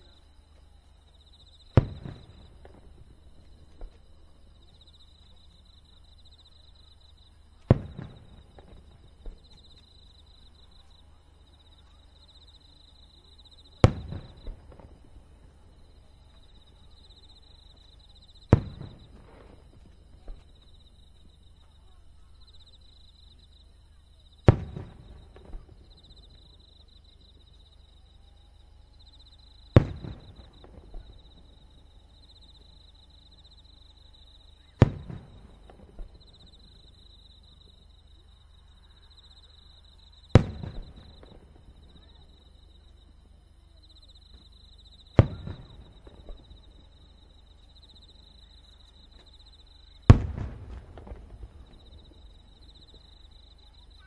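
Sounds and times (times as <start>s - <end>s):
firework shells bursting: 18.4s - 20.6s, 50.1s - 52.2s.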